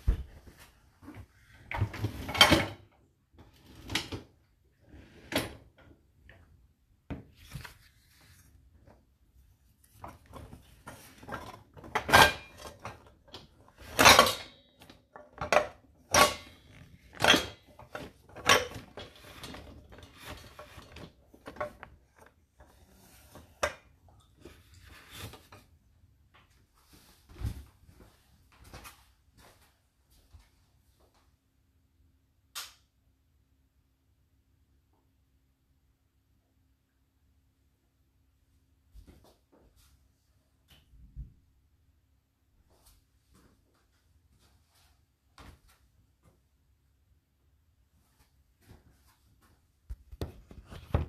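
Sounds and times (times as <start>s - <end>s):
dishwasher racks clattering: 11.3s - 21.8s.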